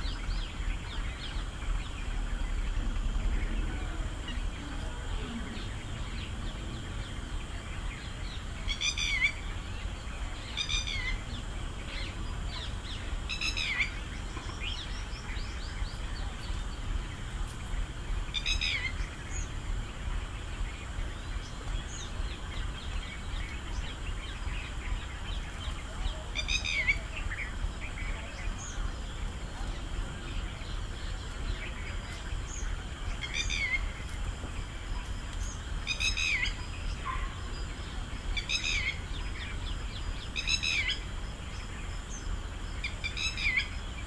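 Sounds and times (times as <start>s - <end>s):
low background rumble: 0.0s - 44.0s
soft bird chirps: 0.0s - 44.0s.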